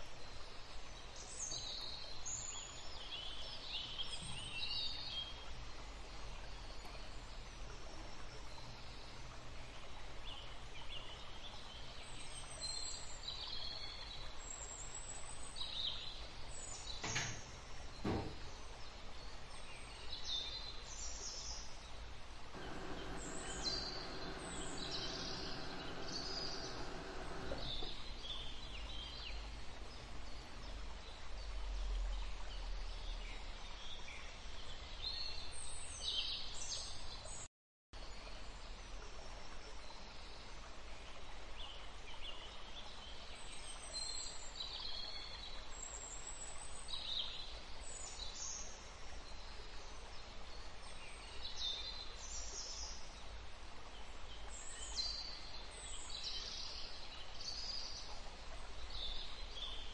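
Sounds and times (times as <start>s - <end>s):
small birds chirping: 0.0s - 30.8s
droning hum: 21.6s - 30.8s.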